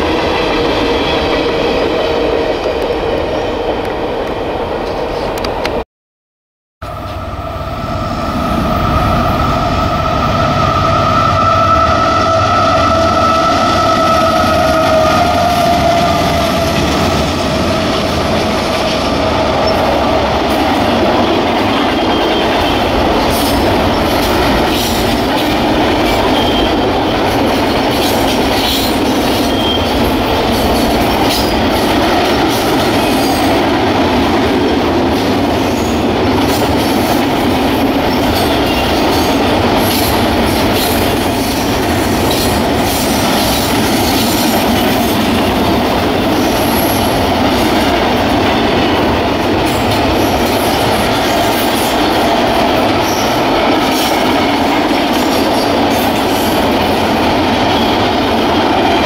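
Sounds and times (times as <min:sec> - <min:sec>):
train wheels rumbling on rails: 0:00.0 - 0:05.8, 0:06.8 - 0:59.0
locomotive whine: 0:06.8 - 0:59.0
train clanks: 0:10.8 - 0:59.0
wheel squeals: 0:26.0 - 0:27.2, 0:28.6 - 0:30.1.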